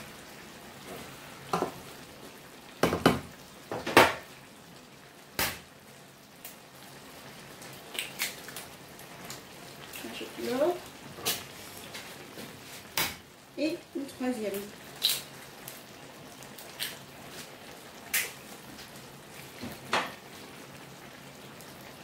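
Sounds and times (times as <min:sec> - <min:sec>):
vegetables simmering: 0:00.0 - 0:22.0
egg cracking: 0:07.9 - 0:08.7, 0:15.0 - 0:15.3.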